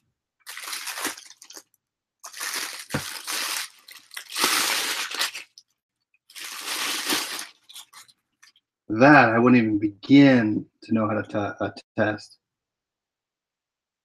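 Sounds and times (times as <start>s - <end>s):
plastic wrapping crinkling: 0.4s - 8.6s.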